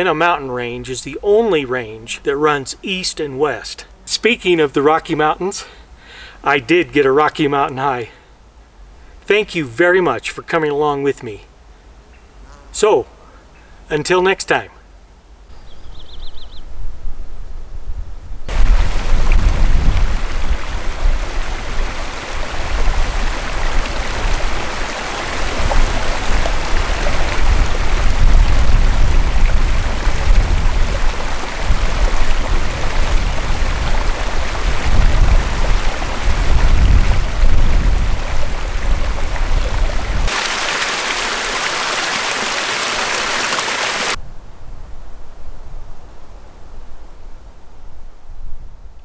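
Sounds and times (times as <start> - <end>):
waterfall splashing over rocks: 18.5 - 44.2.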